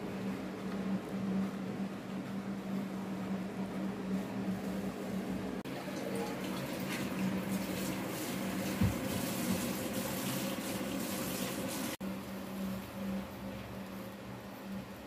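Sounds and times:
steady low hum: 0:00.0 - 0:11.0, 0:11.8 - 0:15.0
running water splashing: 0:05.7 - 0:12.0.

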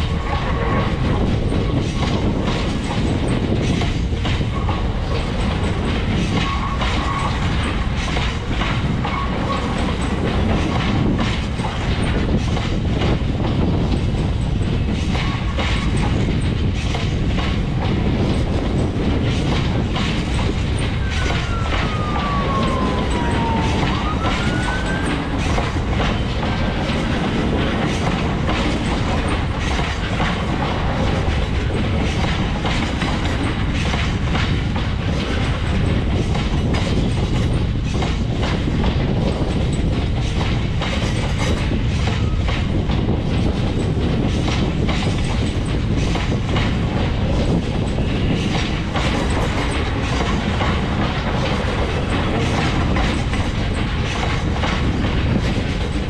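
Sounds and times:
freight train rumbling: 0:00.0 - 0:56.0
wheels clacking over rail joints: 0:00.0 - 0:56.0.

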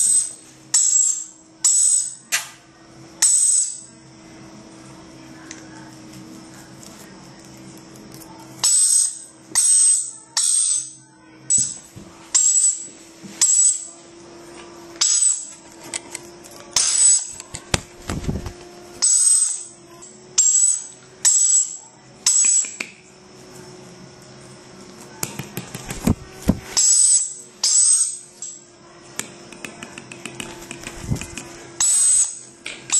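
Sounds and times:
parrot screeching: 0:19.0 - 0:19.7.

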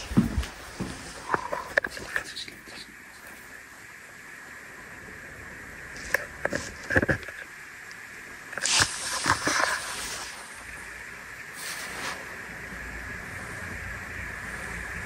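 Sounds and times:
footsteps crunching on concrete: 0:00.0 - 0:01.5
faint high-pitched hum: 0:00.0 - 0:15.0.

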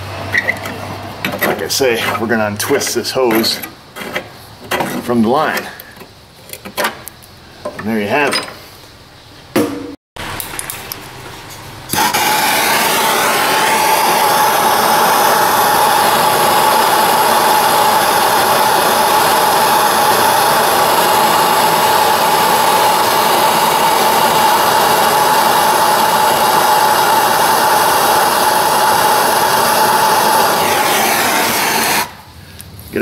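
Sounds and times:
gas torch hissing and whistling: 0:00.0 - 0:03.3, 0:11.9 - 0:33.0.

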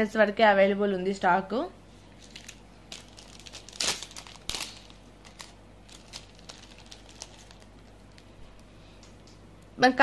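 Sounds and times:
jewellery crinkling: 0:02.1 - 0:09.1.

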